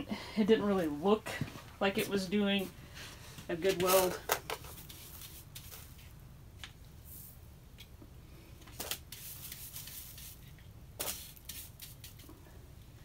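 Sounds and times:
brush sweeping sand off metal: 9.1 - 12.0.

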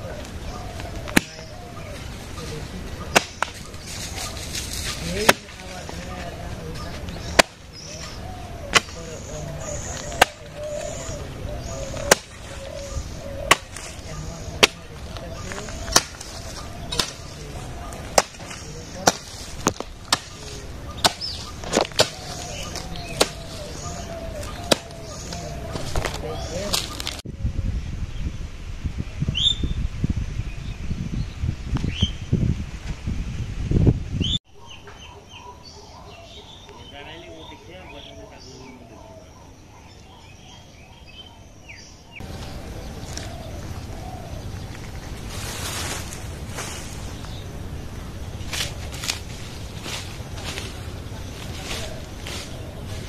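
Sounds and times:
small birds chirping: 0.0 - 28.4, 34.1 - 53.0
rustling with scratchy strokes: 1.9 - 7.2, 15.0 - 27.2, 44.6 - 47.4, 48.4 - 53.0
hoe striking hard soil: 15.8 - 17.3, 18.1 - 23.7
wind rumble on microphone: 22.5 - 34.4.

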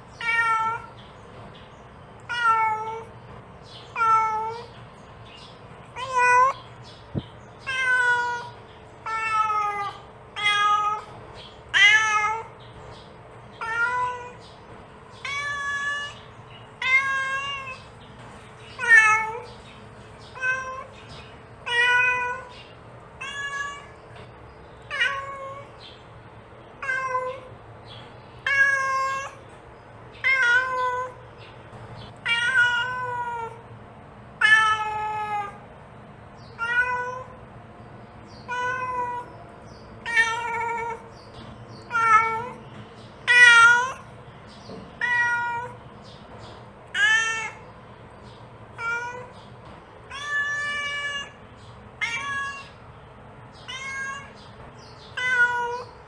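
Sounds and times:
cat meowing: 0.1 - 0.9, 2.2 - 3.1, 3.9 - 4.7, 5.9 - 6.6, 7.6 - 11.1, 11.7 - 12.6, 13.6 - 14.4, 15.2 - 17.9, 18.7 - 19.6, 20.3 - 21.0, 21.6 - 22.6, 23.2 - 24.1, 24.9 - 25.8, 26.8 - 27.5, 28.4 - 29.4, 30.2 - 31.2, 32.2 - 33.6, 34.4 - 35.6, 36.6 - 37.4, 38.4 - 39.3, 40.0 - 41.2, 41.8 - 42.6, 43.2 - 44.1, 45.0 - 45.8, 46.9 - 47.8, 48.7 - 49.4, 50.1 - 52.8, 53.5 - 56.0.

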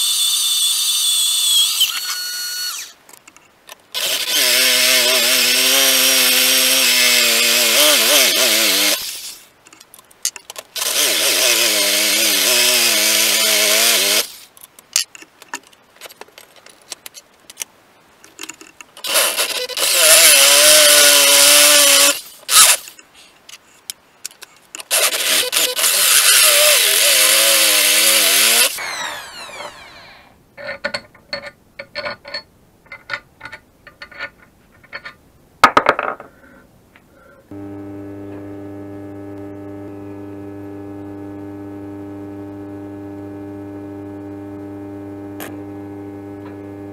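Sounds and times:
cordless drill whining through metal: 0.0 - 3.0, 3.9 - 9.4, 10.8 - 14.4, 19.0 - 22.9, 24.9 - 30.4.

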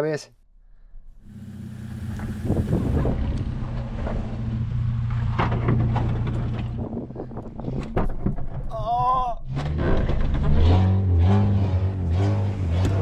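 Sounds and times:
car engine under load: 1.1 - 8.7, 9.5 - 13.0
wheels crunching over stones: 1.9 - 8.7.

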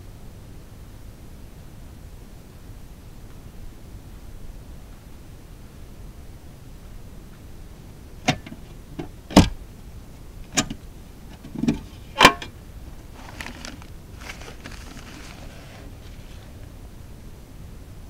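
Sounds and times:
metal ammunition can lid clanking: 8.3 - 9.6, 10.5 - 12.6
paper rustling: 12.9 - 16.7.

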